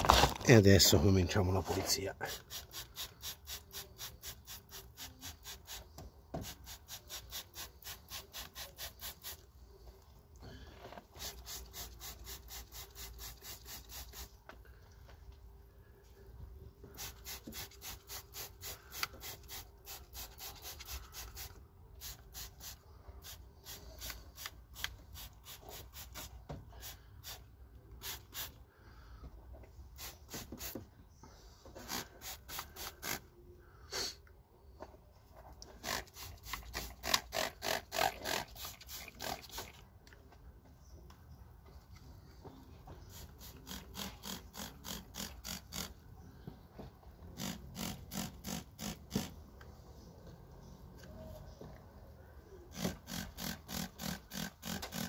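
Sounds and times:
spray bottle squirting: 0:02.3 - 0:09.4, 0:11.0 - 0:14.4, 0:16.9 - 0:27.4, 0:28.0 - 0:28.6, 0:30.0 - 0:30.8, 0:31.8 - 0:33.2, 0:35.7 - 0:39.8, 0:43.1 - 0:45.9, 0:52.7 - 0:55.0.

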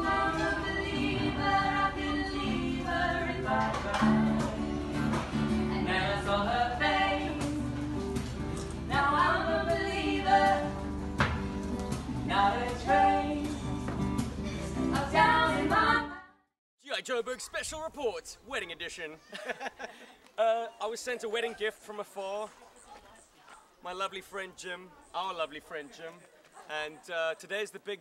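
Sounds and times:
song with singing voice: 0:00.0 - 0:11.0, 0:12.2 - 0:13.8.

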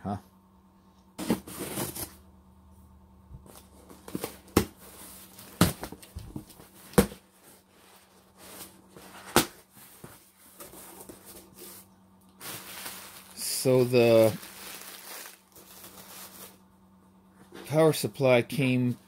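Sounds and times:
plastic air pillows crinkling: 0:12.3 - 0:16.6.

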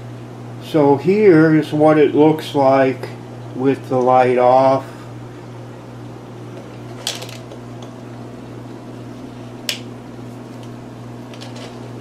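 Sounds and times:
steady low hum: 0:00.0 - 0:12.0
switch click: 0:09.7 - 0:09.9.

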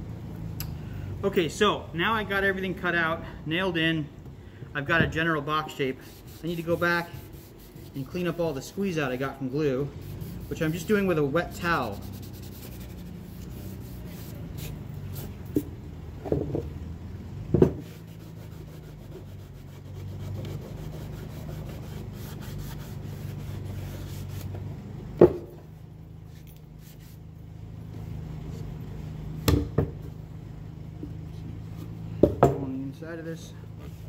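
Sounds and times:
wet cloth rubbing wood: 0:06.0 - 0:15.7, 0:17.8 - 0:24.6.

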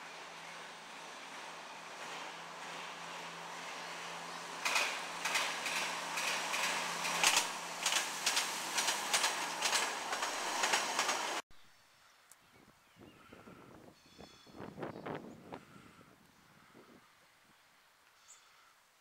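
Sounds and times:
train wheels clicking over rail joints: 0:00.0 - 0:11.4.

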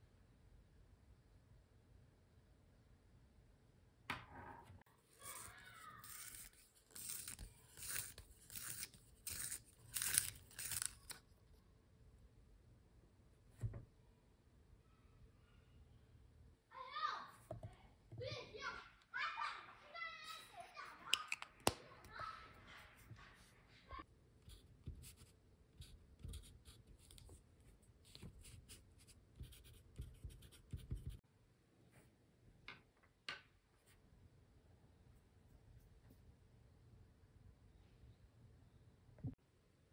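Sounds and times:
pencil writing on paper: 0:05.2 - 0:11.0, 0:24.5 - 0:27.2, 0:28.1 - 0:31.2
pencil sharpener scraping wood: 0:05.2 - 0:11.2
pencils tapping on table: 0:21.1 - 0:21.8.

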